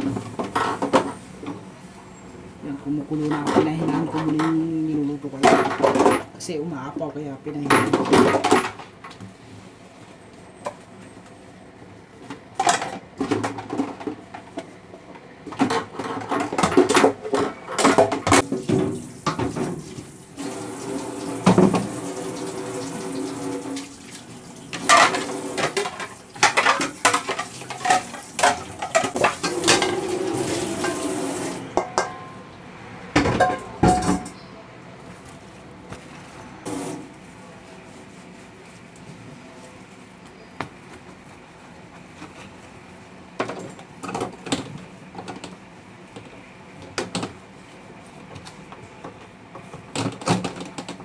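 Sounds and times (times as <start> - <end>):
dishes clinking and clattering: 24.7 - 31.1, 31.7 - 32.4, 33.2 - 34.4.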